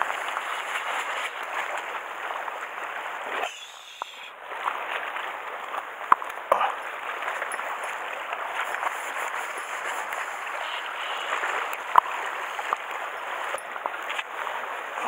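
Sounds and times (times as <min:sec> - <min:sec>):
waves splashing on rocks: 0:00.0 - 0:15.0.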